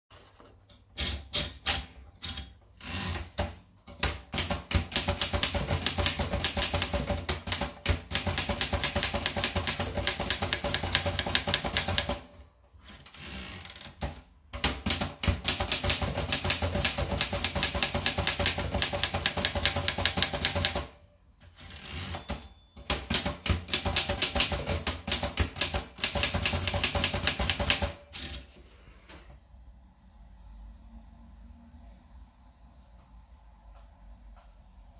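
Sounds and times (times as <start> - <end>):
manual typewriter typing: 0.8 - 28.5.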